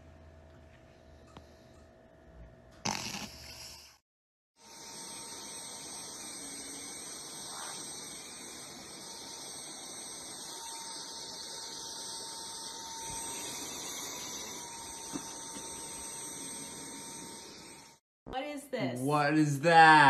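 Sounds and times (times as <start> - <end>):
vacuum cleaner running: 4.6 - 18.0.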